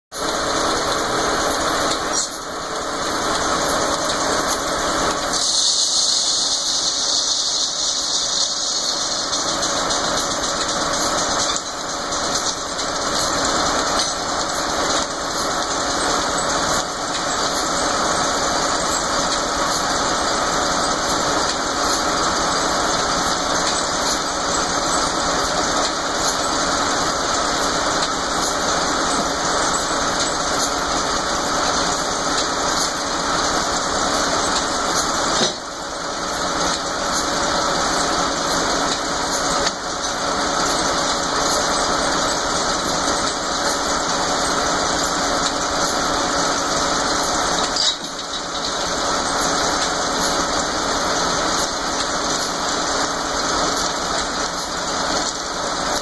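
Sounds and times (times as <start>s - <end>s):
sawmill running: 0.1s - 56.0s
sawmill squeal: 5.3s - 9.8s.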